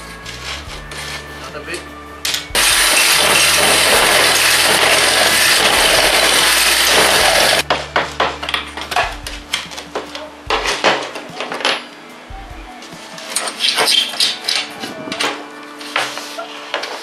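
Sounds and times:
cordless drill grinding: 0:02.6 - 0:07.6.

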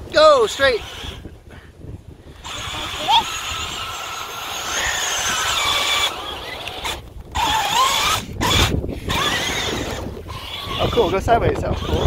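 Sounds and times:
treads churning through sand: 0:00.0 - 0:12.0
small electric motors whining: 0:00.1 - 0:12.0.

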